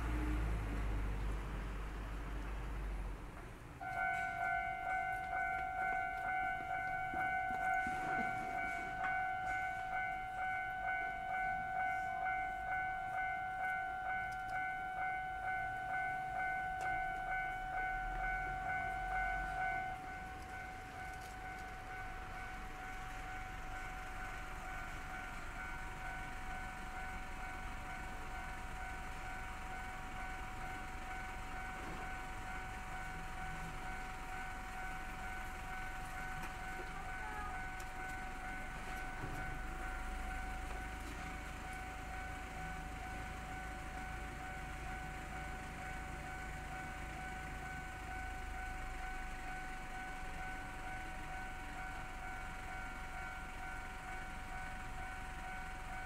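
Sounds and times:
level crossing bell ringing: 3.8s - 56.0s.

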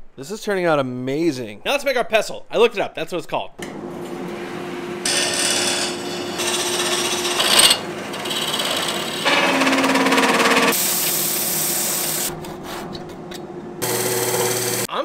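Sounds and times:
wood lathe cutting wood: 4.2s - 10.8s, 13.8s - 14.9s.

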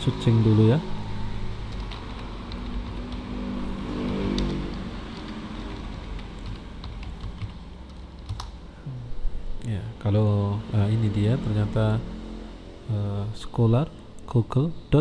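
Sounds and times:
computer keyboard keystrokes: 1.7s - 3.2s, 4.0s - 8.6s
steady background hiss: 5.1s - 15.0s.

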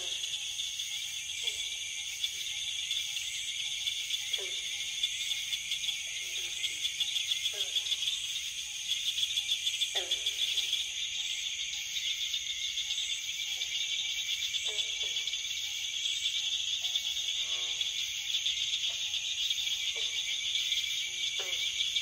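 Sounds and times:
frogs calling: 0.0s - 22.0s
insects trilling: 0.0s - 22.0s.

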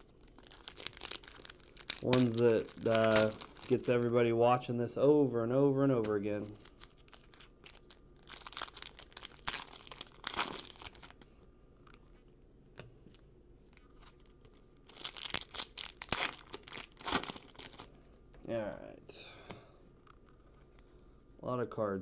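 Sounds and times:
foil packs tearing and crinkling: 0.0s - 4.2s, 6.0s - 11.2s, 14.9s - 17.9s.

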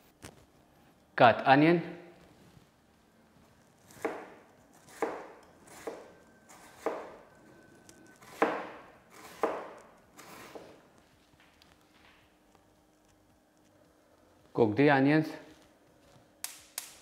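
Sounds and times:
knife chopping on cutting board: 3.9s - 7.2s, 8.2s - 10.8s.

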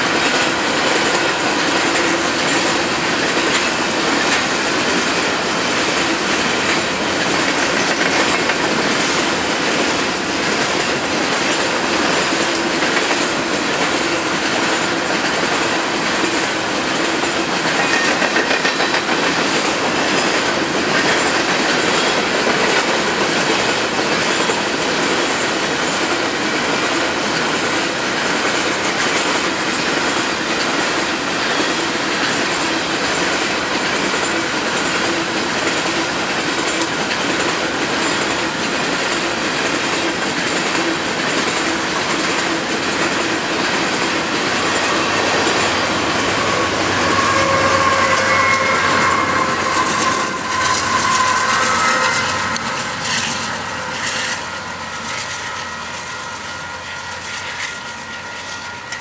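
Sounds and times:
diesel locomotive engine drone: 0.0s - 59.0s
train wheels rumbling and clattering: 0.0s - 59.0s
steady whine: 42.4s - 59.0s.

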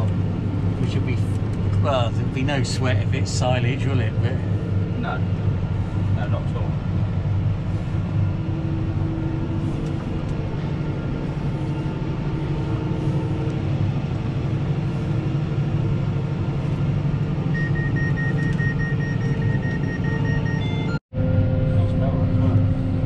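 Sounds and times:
tractor engine running: 0.0s - 23.0s
rapid electronic beeping: 17.5s - 21.0s.

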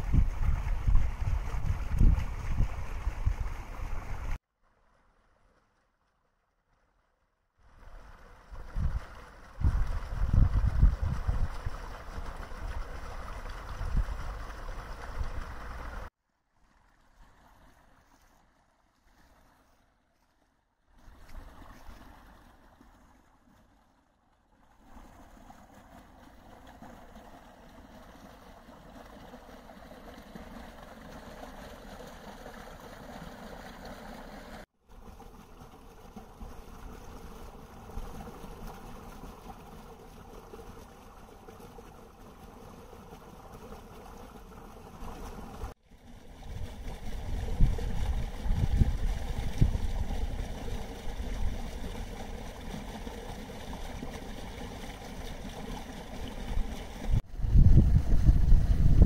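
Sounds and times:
wind rumbling on microphone: 0.0s - 4.4s, 8.5s - 16.1s, 46.4s - 52.2s, 56.5s - 59.0s
brook babbling over stones: 0.0s - 6.1s, 7.6s - 59.0s.

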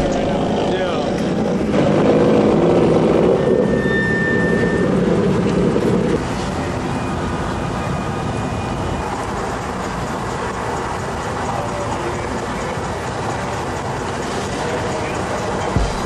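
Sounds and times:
car engine running: 0.0s - 3.8s, 8.2s - 16.0s.

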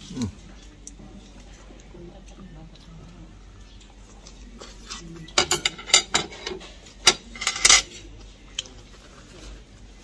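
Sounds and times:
knife and fork clinking on plate: 5.4s - 8.0s.

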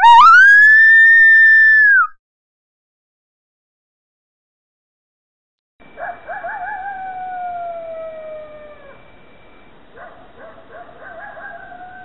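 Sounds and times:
coyote howling: 0.0s - 2.1s, 6.0s - 9.0s.

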